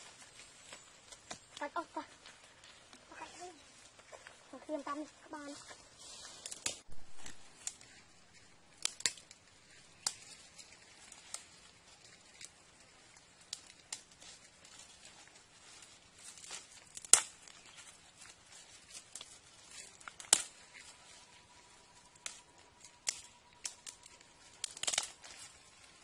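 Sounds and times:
leaves rustling: 0.0s - 26.0s
twigs snapping: 6.4s - 26.0s.

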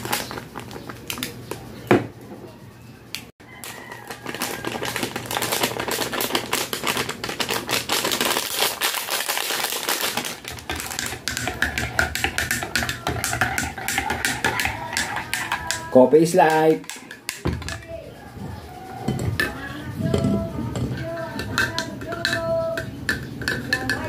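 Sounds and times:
plastic sachet crinkling: 0.0s - 1.5s, 3.5s - 12.0s
spoon stirring and clinking mug: 10.4s - 18.0s, 18.9s - 24.0s.

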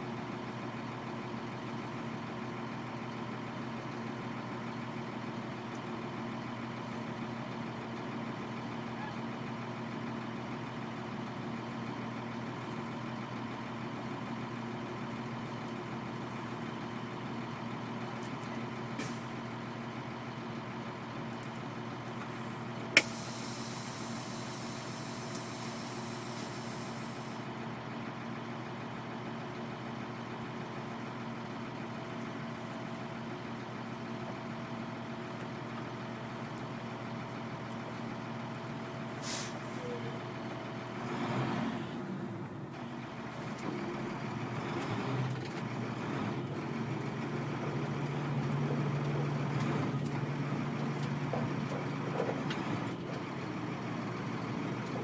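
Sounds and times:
diesel truck engine idling: 0.0s - 55.0s
air brake hiss: 23.0s - 27.4s, 39.2s - 40.0s.

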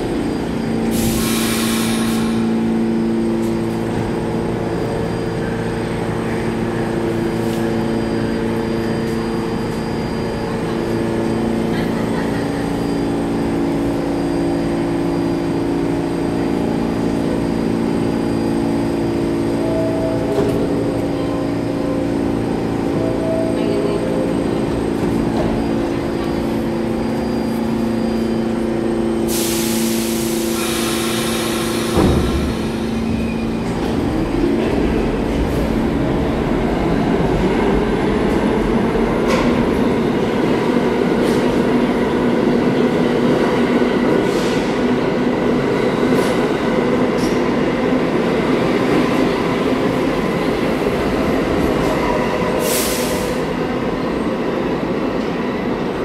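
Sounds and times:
subway train humming: 0.0s - 56.0s
loud burst of hiss: 29.3s - 32.8s.

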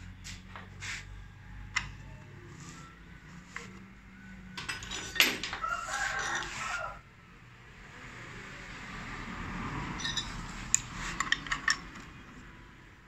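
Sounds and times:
metallic clatter: 4.6s - 6.6s.

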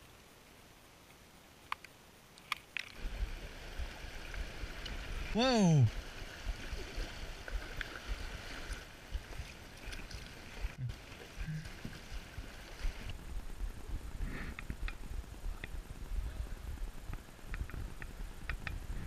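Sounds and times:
paddle strokes: 2.8s - 13.2s
river water rushing: 3.0s - 13.1s.

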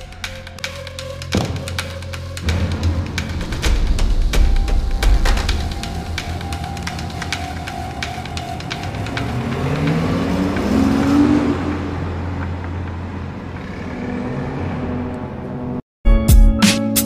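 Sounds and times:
music: 0.0s - 11.4s, 16.0s - 17.0s
sports car accelerating: 5.6s - 15.8s.

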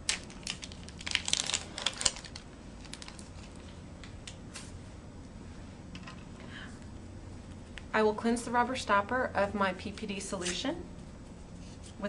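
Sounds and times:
plastic wrapper crackling: 0.0s - 3.7s.

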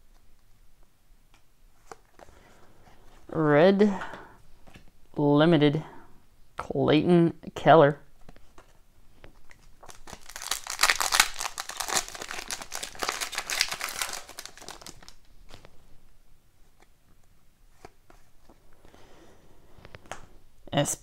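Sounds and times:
foil wrapper crinkling: 9.4s - 15.6s.

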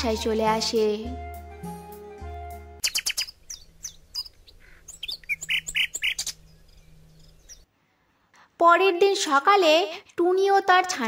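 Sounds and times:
background music chord: 0.0s - 2.8s
songbirds chirping: 2.3s - 8.2s.

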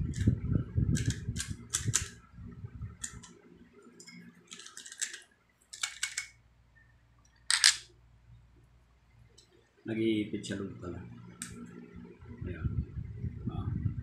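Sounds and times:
rivet gun metallic clicks: 1.0s - 2.2s, 3.0s - 3.3s, 4.0s - 6.3s, 7.5s - 7.9s.

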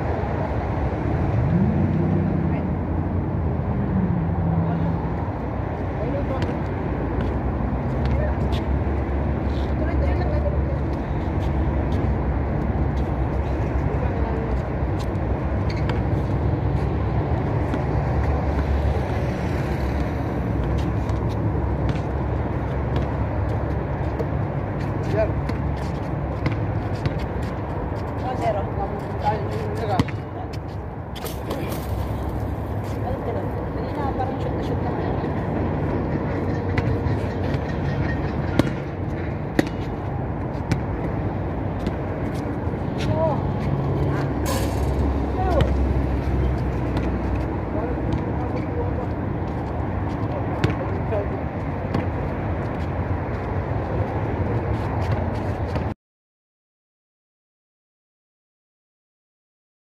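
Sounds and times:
basketball bouncing on concrete: 20.0s - 27.7s, 29.6s - 30.6s, 38.4s - 42.4s, 46.9s - 47.4s, 50.6s - 50.9s.

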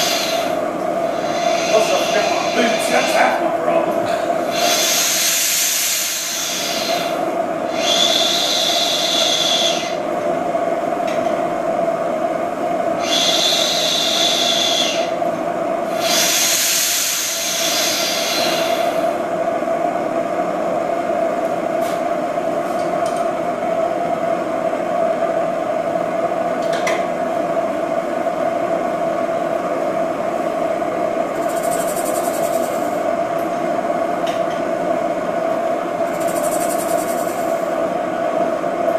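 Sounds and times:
loud hissing bursts: 0.0s - 10.0s, 13.0s - 15.2s, 15.9s - 19.2s
engine drone: 0.0s - 10.4s, 12.8s - 19.4s, 31.2s - 33.6s, 35.7s - 38.0s.

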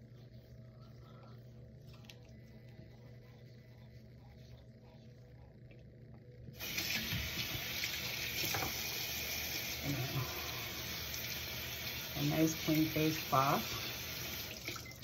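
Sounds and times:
water running into a sink: 6.6s - 15.0s
water tap turned on: 6.6s - 15.0s.

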